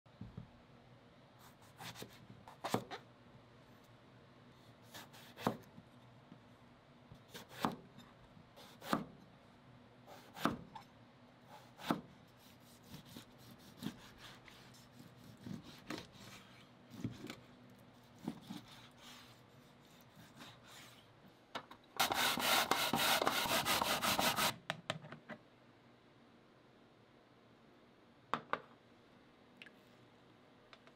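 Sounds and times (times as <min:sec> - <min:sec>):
knife cutting on a cutting board: 0:01.4 - 0:03.0, 0:04.8 - 0:05.7, 0:07.3 - 0:07.8, 0:10.1 - 0:10.8, 0:11.5 - 0:21.0
knife slicing meat: 0:11.6 - 0:17.3, 0:18.1 - 0:20.8
radish grated on plastic grater: 0:22.0 - 0:24.5.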